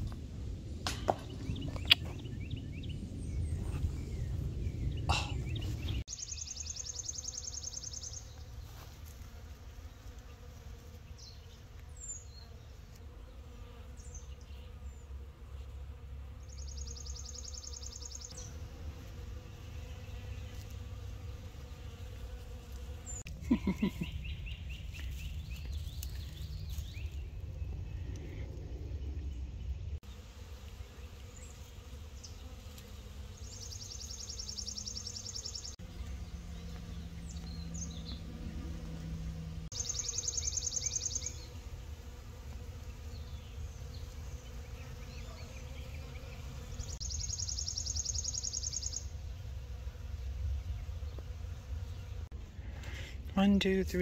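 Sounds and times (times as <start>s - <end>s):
low steady buzz: 26.5s - 54.0s.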